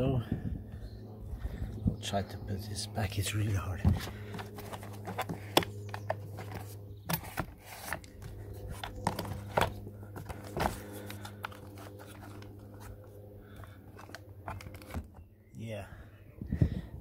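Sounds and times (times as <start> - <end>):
steady low hum: 0.0 - 17.0
hard plastic parts clicking: 3.9 - 12.5.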